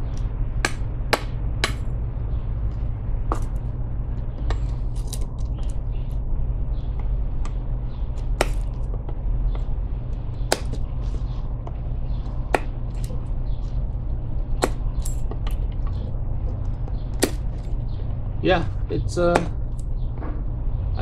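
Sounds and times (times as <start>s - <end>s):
low rumble: 0.0s - 21.0s
knife striking wood: 0.6s - 1.9s, 6.9s - 9.7s, 10.4s - 13.2s, 14.6s - 15.8s, 16.5s - 17.6s, 19.2s - 19.6s.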